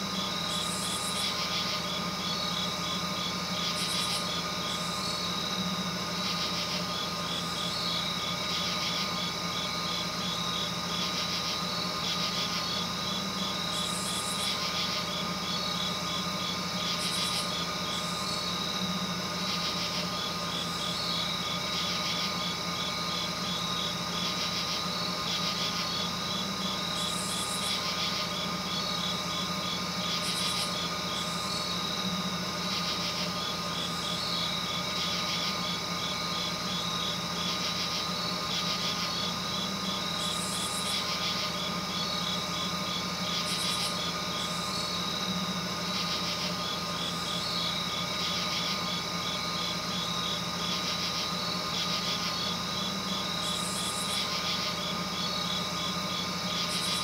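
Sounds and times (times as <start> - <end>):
steady tonal hum: 0.0 - 57.0
rapid high-pitched chirping: 0.2 - 5.4, 6.2 - 18.7, 24.6 - 31.8, 32.6 - 45.1, 50.9 - 57.0.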